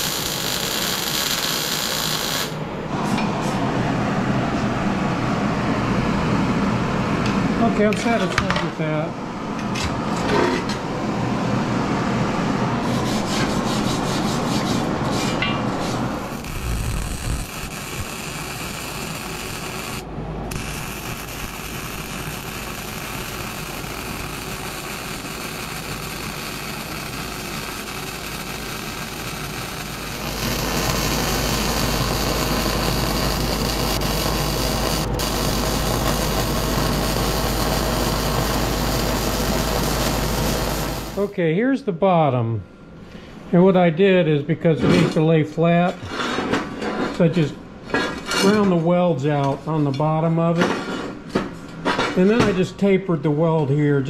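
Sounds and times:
welder arc hissing and crackling: 0.0 - 2.6, 16.2 - 41.3
low hum: 16.0 - 41.2.

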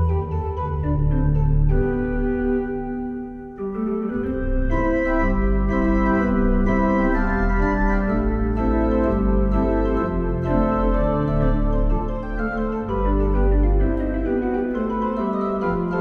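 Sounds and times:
organ playing ragtime: 3.6 - 16.0.

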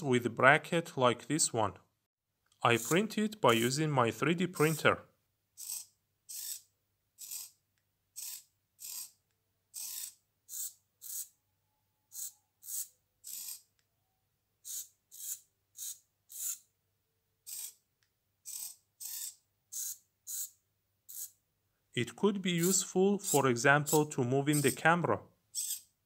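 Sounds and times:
small motor whirring in bursts: 5.6 - 7.6, 8.2 - 9.2, 9.8 - 11.3, 12.1 - 13.7, 14.6 - 16.7, 17.5 - 17.8, 18.4 - 21.4.

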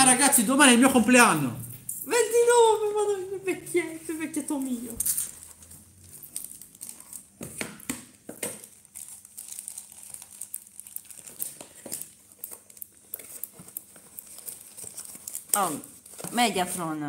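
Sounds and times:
packaging crinkling and rustling: 2.4 - 17.0.

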